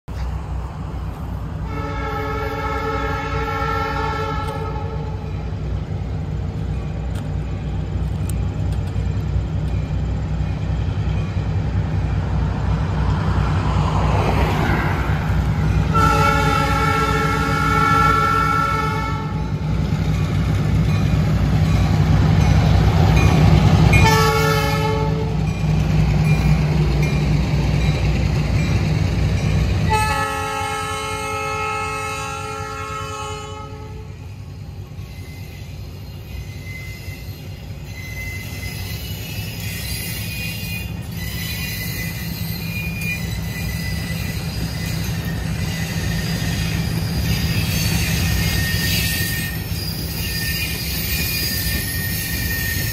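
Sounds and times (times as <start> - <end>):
diesel locomotive engine rumble: 0.1 - 52.9
train horn blasts: 1.6 - 5.3, 15.7 - 19.6, 23.9 - 25.4, 29.8 - 34.3
freight cars wheels on rails: 2.3 - 31.0, 34.2 - 52.9.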